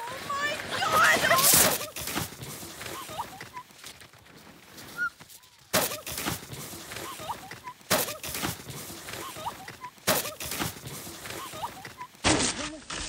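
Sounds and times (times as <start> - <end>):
thuds in snow: 0.0 - 13.0
loud burst of snow noise: 0.3 - 3.4, 5.7 - 12.6.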